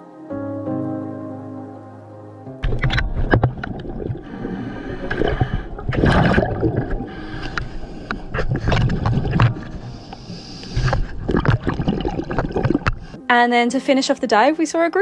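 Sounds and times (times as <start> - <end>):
bubbling exhaled air: 2.8 - 13.2
diver's regulator breathing: 4.1 - 11.5, 12.6 - 13.2.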